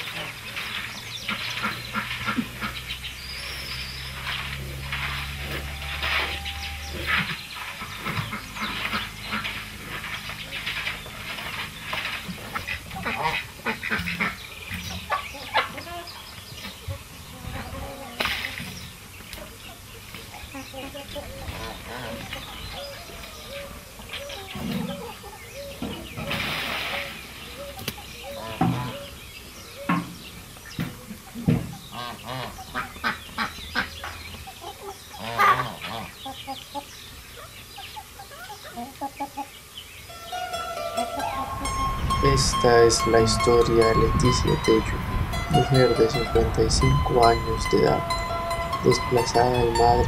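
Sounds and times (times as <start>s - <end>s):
chicken calling: 12.4s - 18.2s, 19.4s - 30.1s, 31.2s - 50.0s.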